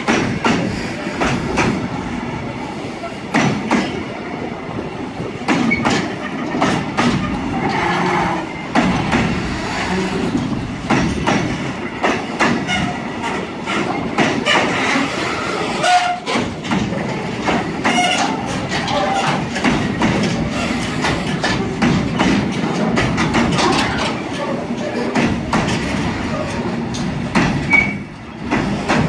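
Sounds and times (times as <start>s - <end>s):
train rumble: 0.0s - 29.0s
train wheels clacking over rail joints: 0.0s - 29.0s
wheel squeals: 27.6s - 28.1s.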